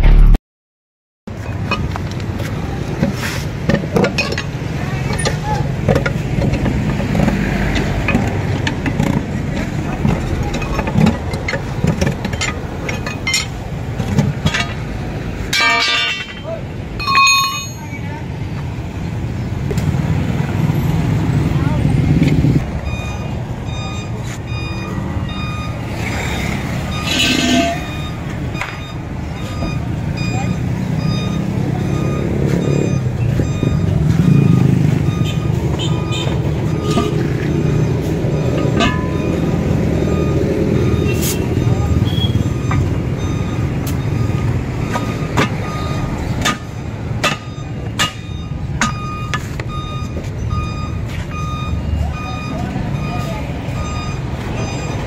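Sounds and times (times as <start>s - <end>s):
engine rumbling: 0.0s - 0.4s, 1.3s - 55.0s
hammer clanking on steel rim: 15.5s - 17.9s, 27.0s - 28.0s, 38.6s - 39.3s, 46.4s - 49.0s
short high beeps: 22.8s - 36.2s
reversing alarm beeping: 22.8s - 55.0s.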